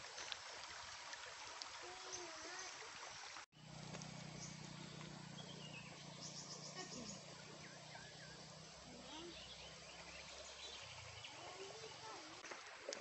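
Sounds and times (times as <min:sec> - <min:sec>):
birds chirping: 0:03.6 - 0:12.4.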